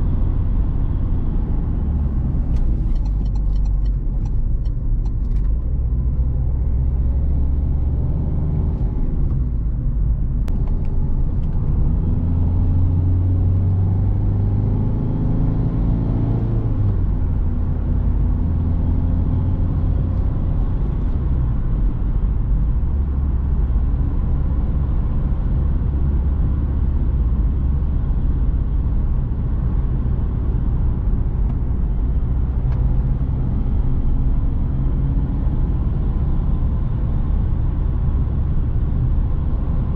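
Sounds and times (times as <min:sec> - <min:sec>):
low road rumble: 0:00.0 - 0:39.9.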